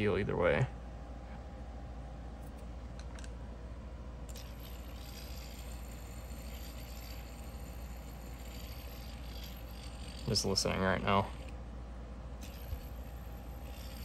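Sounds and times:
thin high whine: 0:04.2 - 0:11.6, 0:12.4 - 0:14.0
fidget spinner whirring: 0:04.3 - 0:11.6, 0:12.4 - 0:14.0.

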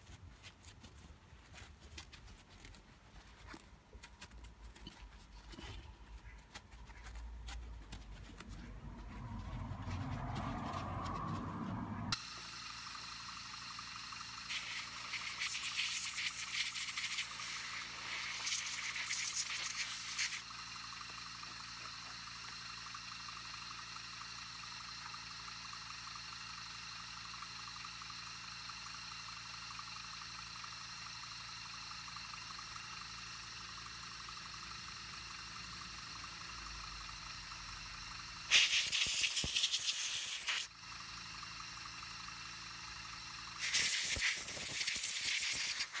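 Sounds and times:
compressed air blow gun hissing: 0:14.4 - 0:20.6, 0:38.5 - 0:40.7, 0:43.6 - 0:46.0.

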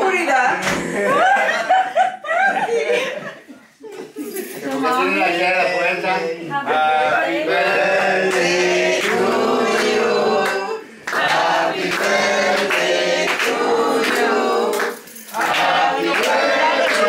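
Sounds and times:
group of voices singing: 0:04.7 - 0:17.0.

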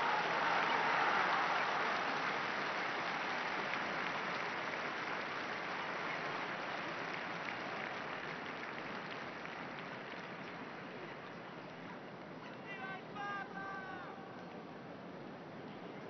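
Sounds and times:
crowd applauding: 0:00.0 - 0:12.0.

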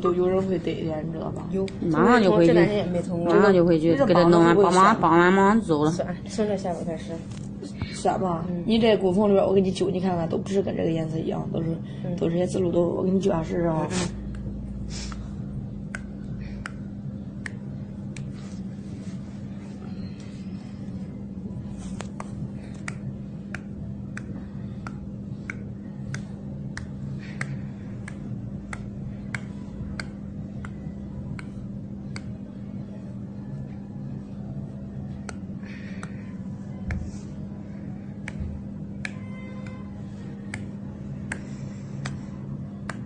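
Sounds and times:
steady low hum: 0:00.0 - 0:43.0
skin-pinching snapping clicks: 0:15.1 - 0:18.3, 0:22.0 - 0:32.4, 0:35.1 - 0:36.2, 0:38.2 - 0:39.8, 0:40.4 - 0:43.0.

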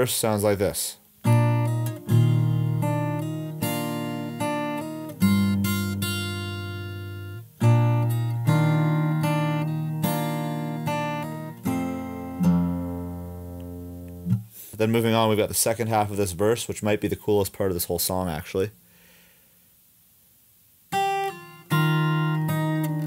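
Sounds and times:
fingerstyle acoustic guitar: 0:01.2 - 0:14.6, 0:20.9 - 0:23.0.

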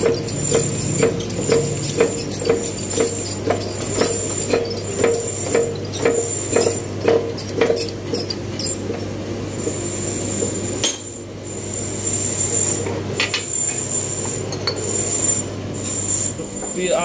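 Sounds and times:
short squeak: 0:00.0 - 0:09.1
steady hum: 0:00.0 - 0:17.0.

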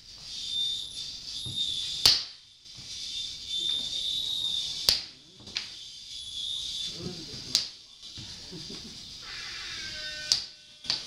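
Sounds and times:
high hissy electronic drone: 0:00.0 - 0:11.0.

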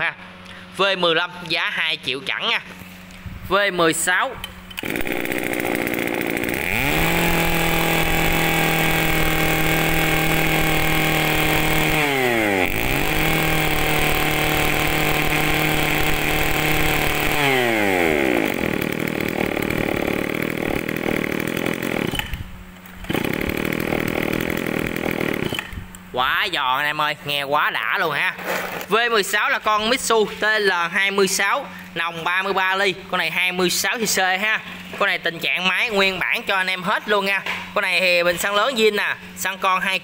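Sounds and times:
brush cutter engine revving: 0:04.8 - 0:25.8.

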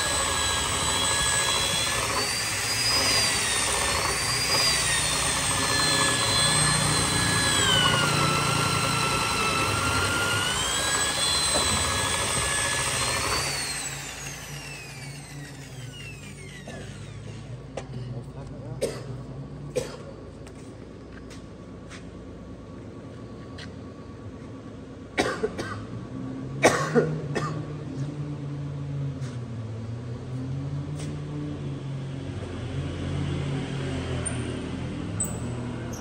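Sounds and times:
electric drill motor winding down: 0:00.0 - 0:17.7, 0:35.2 - 0:36.0
person coughing: 0:18.8 - 0:20.2, 0:25.2 - 0:25.9, 0:26.6 - 0:27.7.

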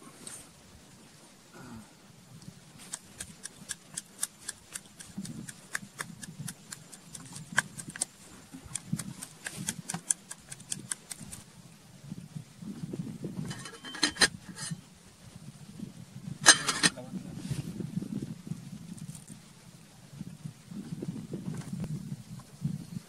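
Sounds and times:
pestle pounding in wooden mortar: 0:02.9 - 0:11.4.

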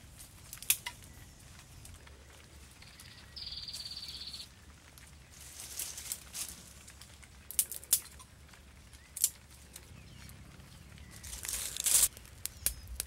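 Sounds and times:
crackling rustle of dry leaves: 0:00.0 - 0:13.0
twigs snapping: 0:00.4 - 0:03.2, 0:04.8 - 0:10.4, 0:11.0 - 0:13.0.

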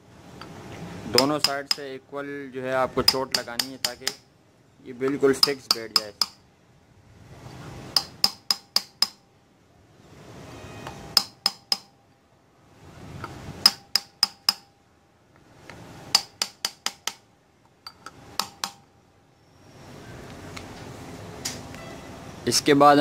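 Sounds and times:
hammer tapping on steel socket: 0:01.2 - 0:01.9, 0:03.0 - 0:04.2, 0:05.1 - 0:06.4, 0:11.2 - 0:11.9.

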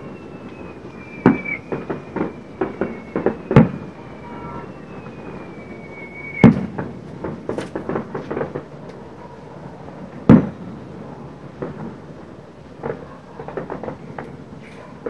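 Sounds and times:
whistling firework shell: 0:00.0 - 0:08.5
crackling firework pops: 0:00.0 - 0:09.1, 0:10.0 - 0:10.8, 0:11.5 - 0:12.1, 0:12.7 - 0:15.0
loud firework bangs: 0:00.0 - 0:15.0.

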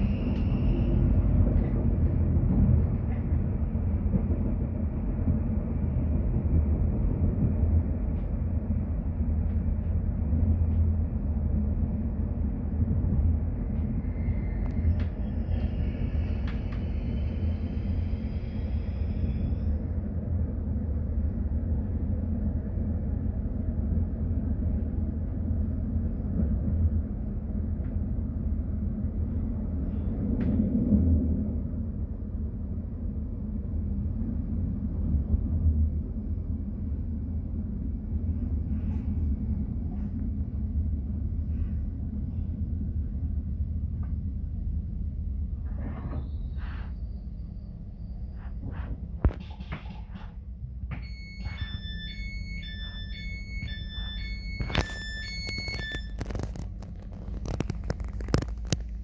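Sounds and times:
train wheels rumbling: 0:00.0 - 0:55.3
faint high squeal: 0:14.0 - 0:19.8, 0:45.9 - 0:48.7, 0:50.9 - 0:56.2.

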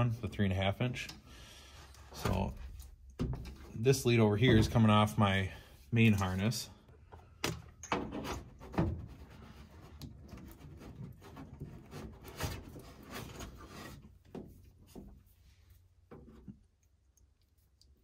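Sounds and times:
wires rubbing and rustling: 0:08.0 - 0:18.0.

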